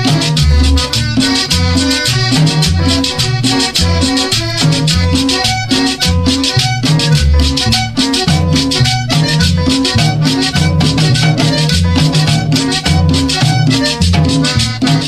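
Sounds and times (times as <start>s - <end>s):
dance music with steady beat: 0.0s - 15.0s.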